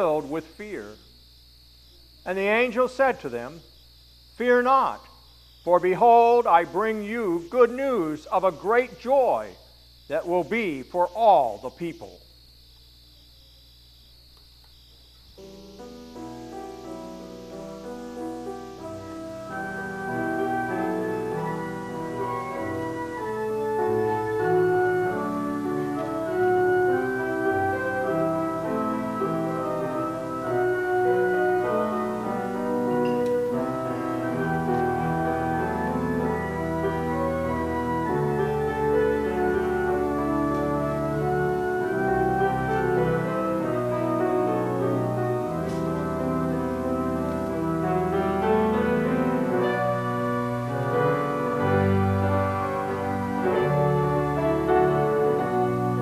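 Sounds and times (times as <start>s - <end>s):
church organ chords: 0.0s - 56.0s.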